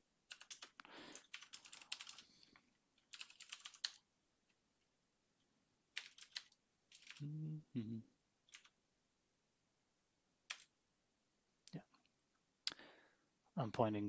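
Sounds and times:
typing on computer keyboard: 0.3 - 2.4, 3.0 - 4.0, 5.9 - 7.2, 8.5 - 8.8, 10.5 - 10.7.

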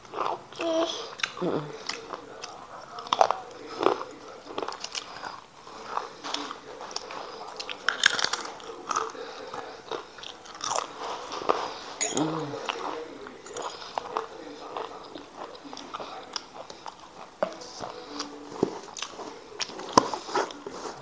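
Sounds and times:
crisp chips crunching: 1.2 - 11.6.

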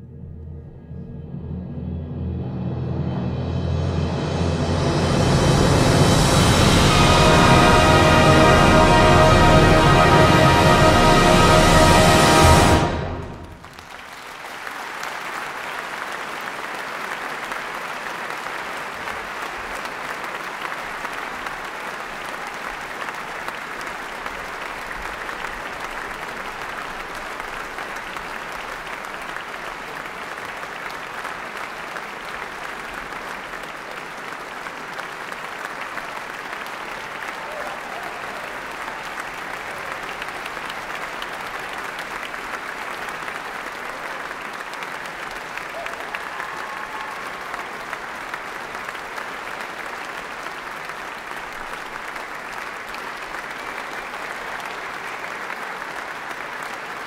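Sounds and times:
band final chord: 0.0 - 13.7
audience applauding: 6.4 - 57.0.

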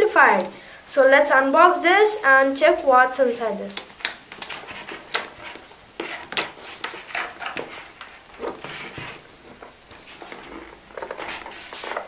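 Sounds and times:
cardboard box scraping and tapping: 4.4 - 12.0.

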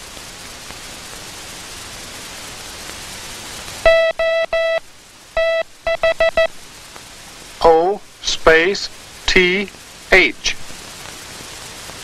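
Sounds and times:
faint hiss: 0.0 - 12.0
morse code beeping: 3.9 - 4.8, 5.4 - 6.5.

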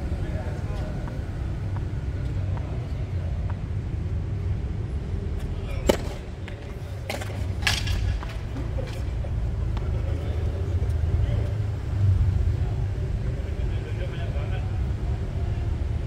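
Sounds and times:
ball bouncing on hard court: 5.9 - 8.4
tennis racket hitting ball: 5.9 - 8.4.

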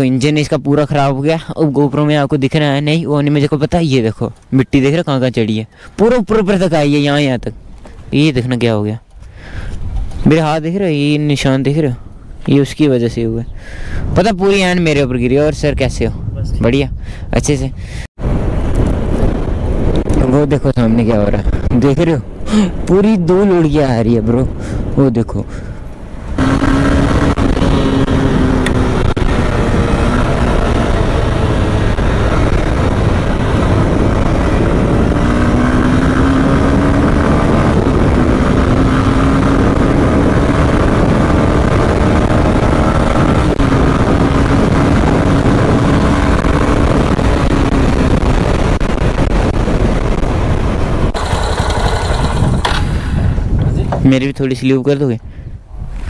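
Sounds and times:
wind noise: 0.0 - 56.0
motorcycle engine running: 26.4 - 50.1, 51.0 - 53.2.

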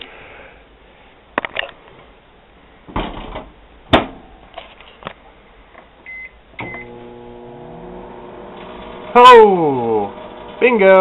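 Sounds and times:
keypad beeps: 6.1 - 6.9
microwave oven humming: 6.6 - 11.0.

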